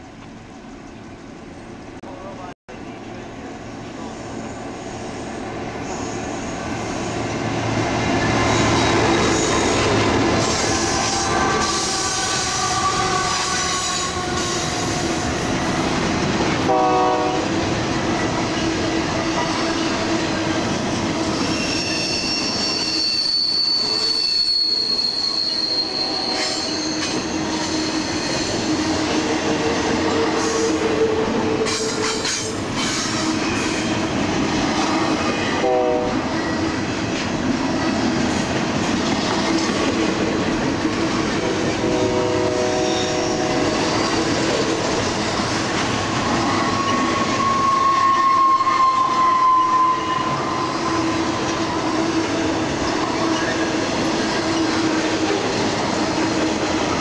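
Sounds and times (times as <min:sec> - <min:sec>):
train wheels rumbling on rail: 0:00.0 - 0:57.0
wheels squealing against rail: 0:04.0 - 0:07.3, 0:08.2 - 0:15.7, 0:21.1 - 0:34.1, 0:41.8 - 0:45.0, 0:45.7 - 0:52.1, 0:52.9 - 0:55.0.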